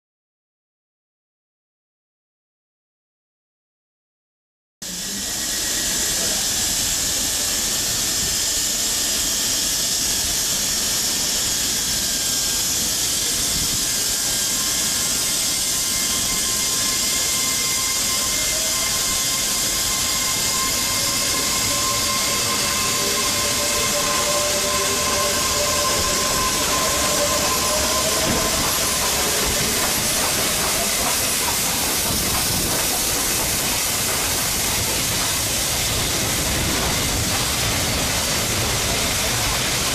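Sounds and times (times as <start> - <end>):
hiss of steam: 4.8 - 39.9
steam locomotive running slowly: 4.8 - 39.9
faint thin squeals: 13.9 - 31.0.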